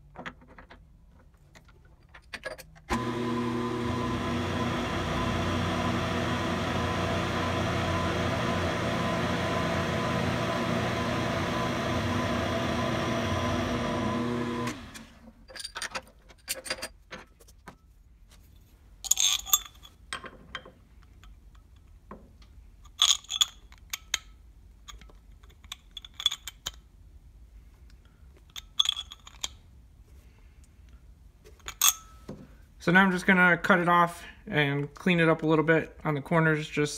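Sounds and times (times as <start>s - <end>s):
milling machine cutting metal: 2.9s - 15.1s.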